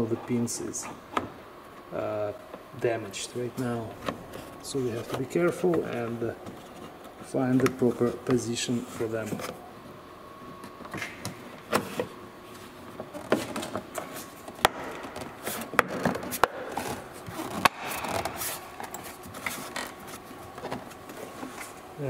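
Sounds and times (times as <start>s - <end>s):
plastic trim scraping car body: 13.0s - 21.8s.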